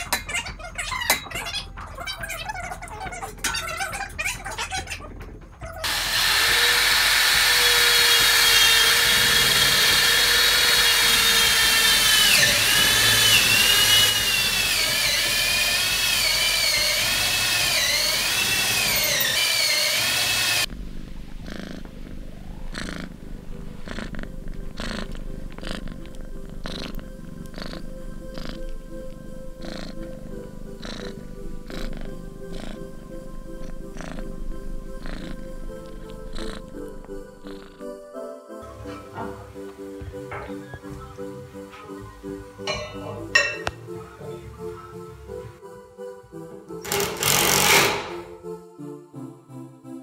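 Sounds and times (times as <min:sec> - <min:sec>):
cat purring: 0:00.0 - 0:15.1, 0:20.3 - 0:45.6
power tool whining: 0:05.8 - 0:20.7, 0:46.8 - 0:48.2.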